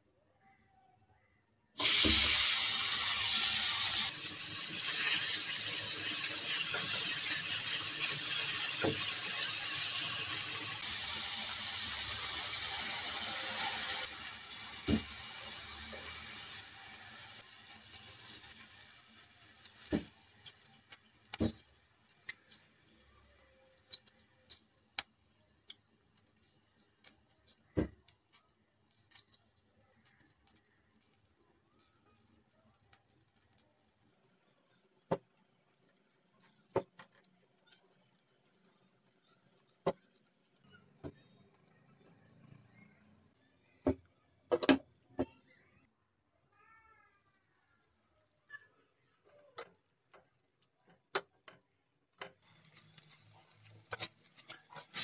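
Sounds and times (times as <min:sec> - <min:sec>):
meat sizzling in a frying pan: 0:01.8 - 0:25.4, 0:52.4 - 0:55.0.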